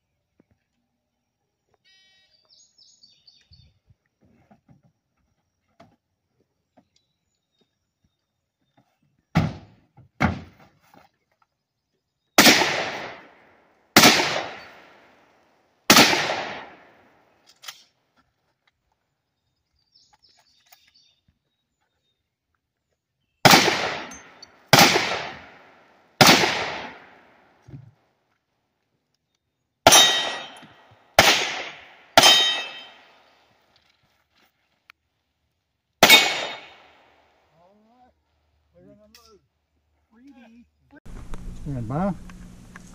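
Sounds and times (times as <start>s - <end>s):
handgun shots: 12.4s - 13.3s, 14.0s - 15.0s, 15.9s - 17.0s, 23.5s - 25.6s, 26.2s - 27.2s, 29.9s - 33.2s, 36.0s - 37.0s.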